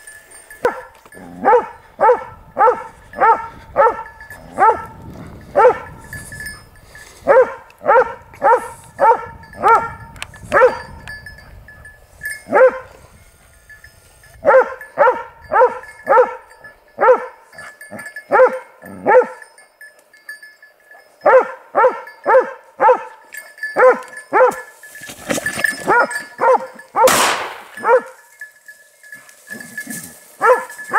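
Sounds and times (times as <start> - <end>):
dog barking: 0.6 - 5.0, 5.6 - 6.0, 7.2 - 10.9, 12.5 - 12.9, 14.4 - 17.4, 18.3 - 19.4, 21.2 - 23.2, 23.8 - 24.7, 25.9 - 27.2, 27.8 - 28.2, 30.4 - 30.8.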